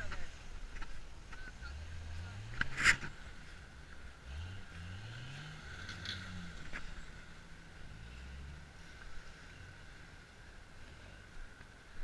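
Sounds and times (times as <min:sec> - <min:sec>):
truck engine revving: 0:04.1 - 0:08.8.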